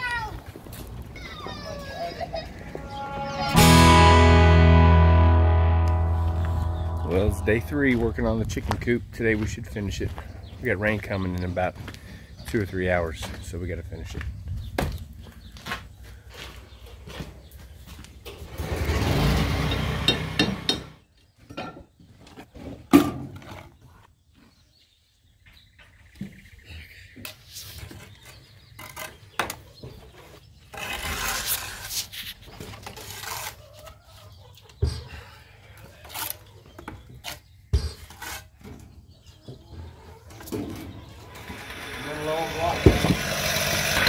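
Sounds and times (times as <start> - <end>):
blocks scraping in mortar: 30.6 - 33.6.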